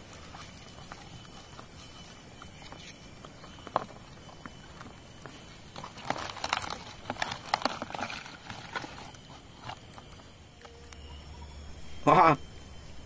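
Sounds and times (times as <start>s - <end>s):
beetles scratching plastic tub: 0.0s - 11.0s.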